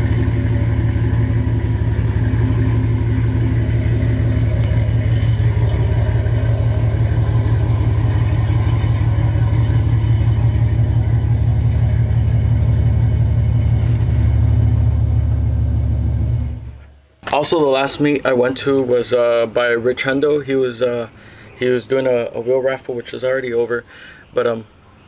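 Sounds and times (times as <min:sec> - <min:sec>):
truck engine idling with loud exhaust: 0:00.0 - 0:16.9.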